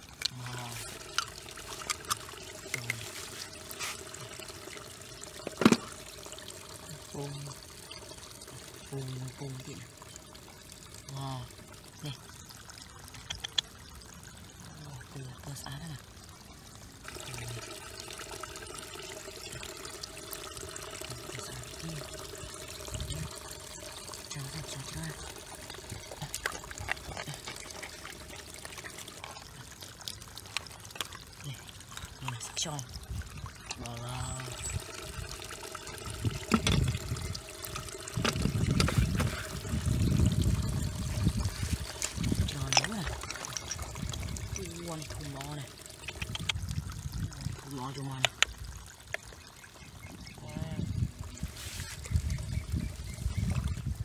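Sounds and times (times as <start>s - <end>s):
water pouring and splashing: 0.0s - 54.0s
sharp clicks: 13.3s - 13.6s.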